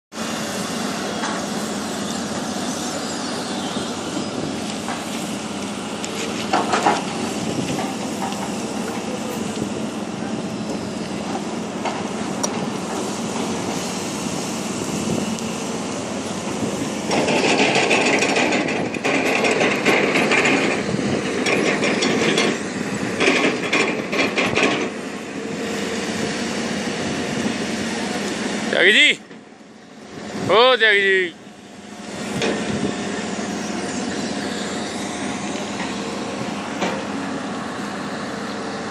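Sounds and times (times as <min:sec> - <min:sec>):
excavator diesel engine: 0:00.1 - 0:38.9
knocks and clanks: 0:06.4 - 0:08.6, 0:17.1 - 0:22.6, 0:23.2 - 0:24.9.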